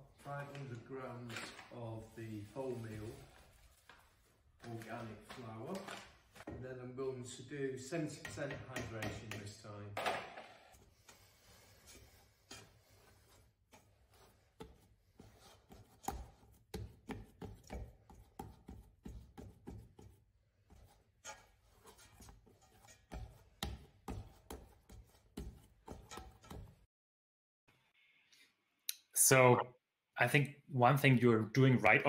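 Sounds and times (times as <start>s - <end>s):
hand kneading dough in metal pot: 10.6s - 26.9s.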